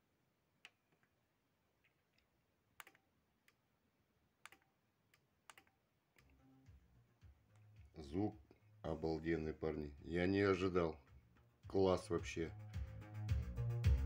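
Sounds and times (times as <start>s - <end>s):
faint clicks: 1.8s - 3.6s, 4.4s - 6.4s.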